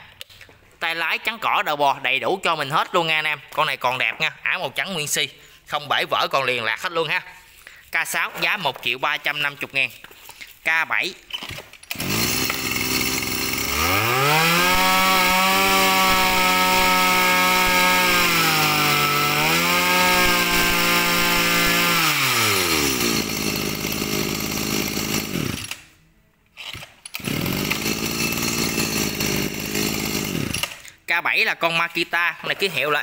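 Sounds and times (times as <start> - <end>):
brush cutter engine revving: 11.8 - 26.0, 26.6 - 30.9.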